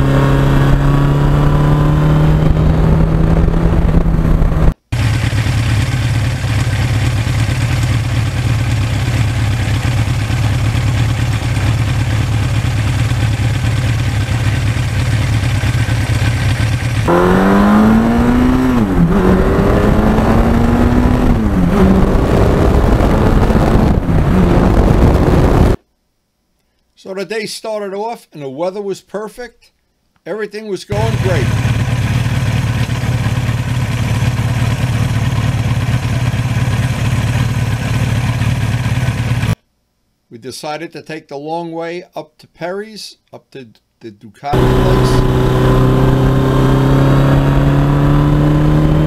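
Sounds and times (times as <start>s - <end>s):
motorcycle engine revving: 0.0s - 25.8s, 30.9s - 39.6s, 44.5s - 49.0s.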